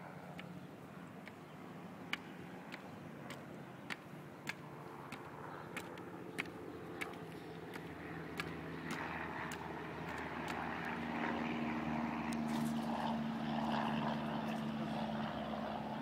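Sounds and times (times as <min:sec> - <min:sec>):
distant engine drone: 0:00.0 - 0:16.0.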